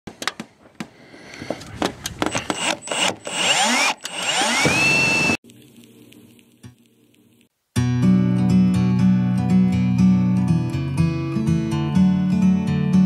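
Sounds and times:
power drill motor whining: 1.6s - 5.4s.

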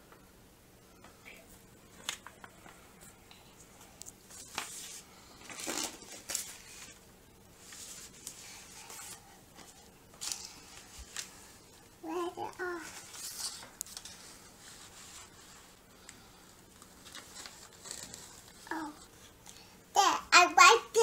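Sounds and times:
paper rustling and crinkling: 1.9s - 7.0s, 7.6s - 11.8s, 12.4s - 19.3s.

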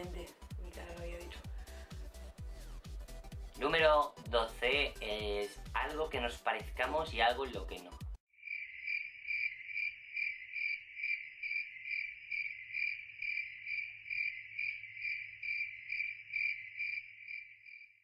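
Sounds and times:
cricket chirping: 8.4s - 18.0s.

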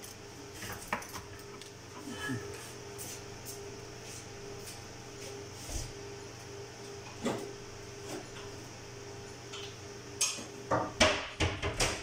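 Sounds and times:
steady low hum: 0.0s - 11.4s.

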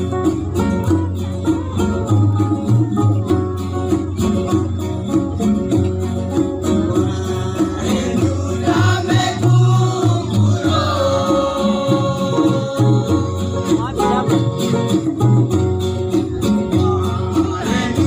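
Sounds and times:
acoustic guitars strumming: 0.0s - 18.0s
plucked bass line: 0.0s - 18.0s
voices singing: 6.6s - 15.2s, 16.2s - 18.0s.

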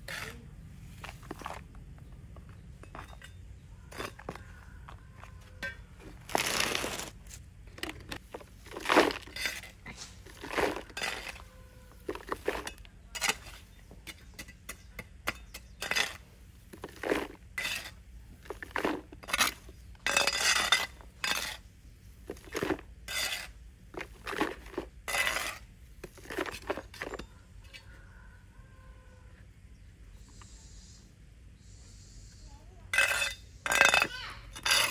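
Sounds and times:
hard objects knocking and scraping: 1.0s - 21.6s, 22.3s - 27.4s.

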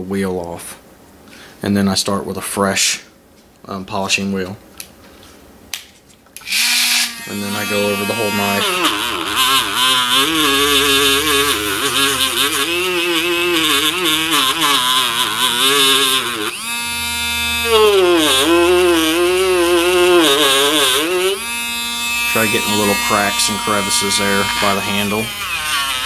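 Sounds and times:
rotary tool motor whine: 6.4s - 26.0s.

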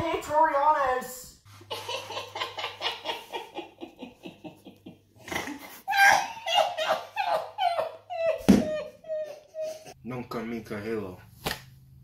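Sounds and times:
people laughing: 1.7s - 10.0s.

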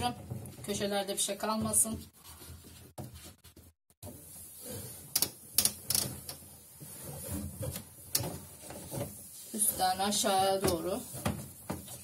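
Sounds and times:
damp cloth rubbing plastic: 6.5s - 12.0s.

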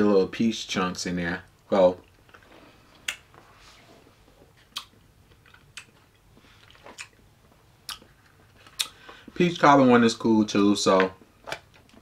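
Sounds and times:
faint room hiss: 0.0s - 12.0s
mouth clicks and smacks eating: 4.6s - 7.2s, 7.8s - 9.1s.

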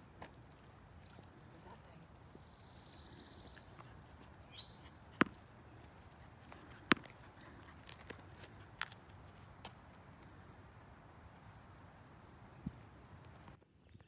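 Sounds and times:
bird chirp: 1.1s - 5.0s.

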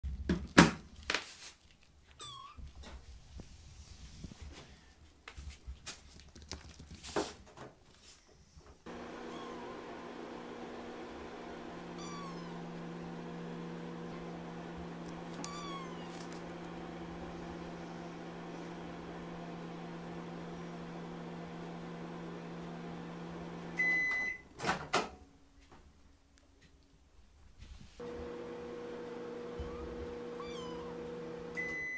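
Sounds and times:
microwave beep: 8.9s - 14.6s, 23.6s - 24.5s, 29.5s - 31.9s
microwave oven humming: 8.9s - 24.5s, 28.0s - 31.9s
kittens meowing: 9.2s - 9.8s, 11.9s - 12.8s, 15.3s - 16.4s, 29.6s - 31.0s.

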